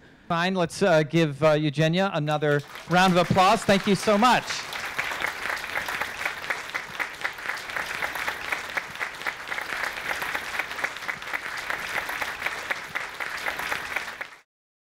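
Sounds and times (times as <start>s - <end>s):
audience applauding: 2.5s - 14.4s.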